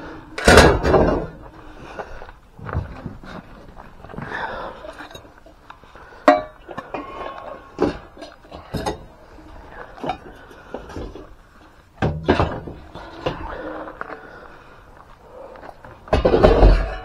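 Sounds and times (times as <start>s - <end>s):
metal items clanking and knocking: 12.0s - 13.8s, 16.1s - 17.0s.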